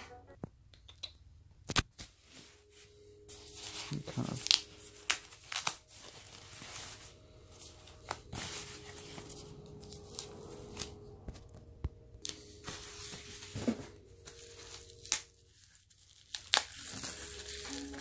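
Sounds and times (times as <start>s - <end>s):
packaging rustling: 2.0s - 11.6s, 12.2s - 18.0s.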